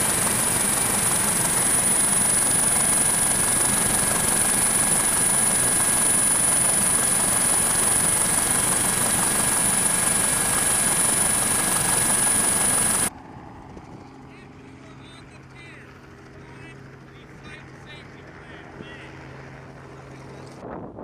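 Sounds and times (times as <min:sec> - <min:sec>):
high steady whine: 0:00.0 - 0:13.1
helicopter engine and rotors: 0:00.0 - 0:21.0.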